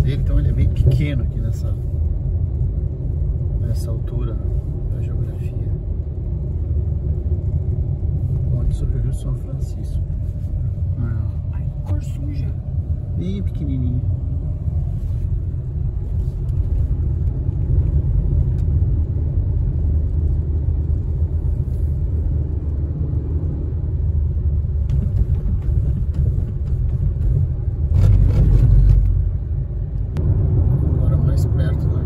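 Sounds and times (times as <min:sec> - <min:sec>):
car cabin road and engine rumble: 0:00.0 - 0:32.0.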